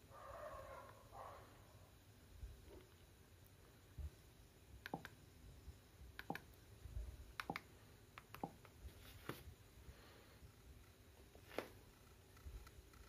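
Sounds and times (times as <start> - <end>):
faint irregular clicks: 4.8 - 5.2, 6.2 - 6.6, 7.3 - 8.8.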